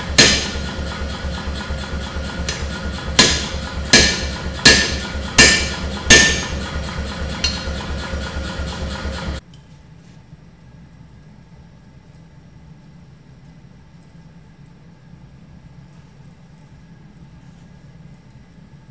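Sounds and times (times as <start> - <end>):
machine low pulsing: 0.0 - 9.4
power hammer striking hot steel: 0.0 - 9.4.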